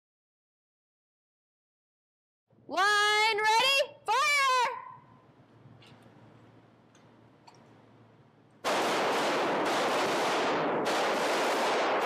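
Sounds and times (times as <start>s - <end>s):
echoing pistol gunfire: 8.6s - 12.0s.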